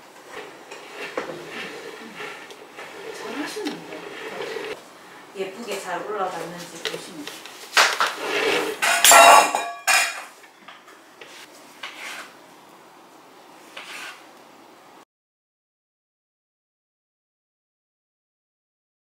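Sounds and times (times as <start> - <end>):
kitchen utensils and dishes clattering: 6.9 - 10.4.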